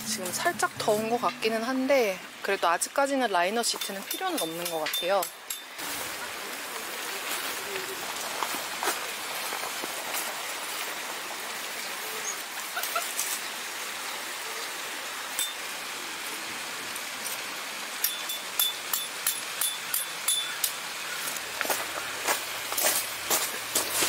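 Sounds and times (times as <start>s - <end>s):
stream rushing over rocks: 0.0s - 24.0s.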